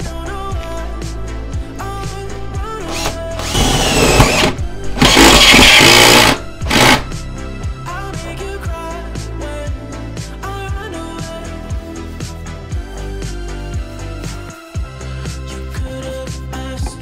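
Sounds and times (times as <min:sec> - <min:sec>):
background music: 0:00.0 - 0:17.0
drill hole saw cutting metal: 0:02.8 - 0:07.1.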